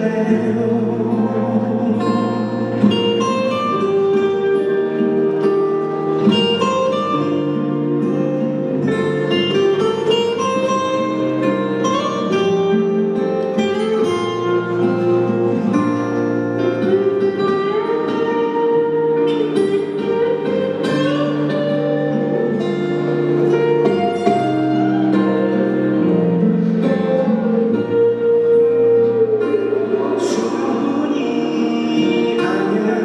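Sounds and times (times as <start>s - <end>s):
held chords: 0.0s - 33.0s
plucked guitar notes: 0.0s - 33.0s.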